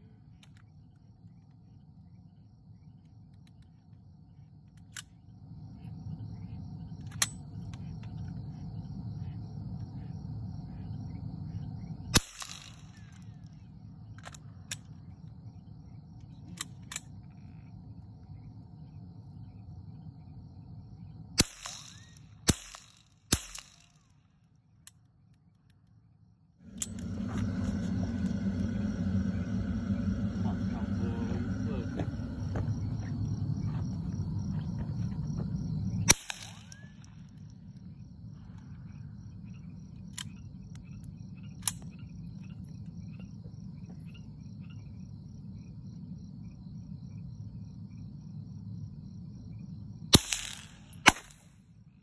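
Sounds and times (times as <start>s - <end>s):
rifle shots: 12.2s - 13.2s, 21.4s - 24.0s, 36.1s - 36.9s, 50.1s - 51.5s
low engine rumble: 26.6s - 45.0s.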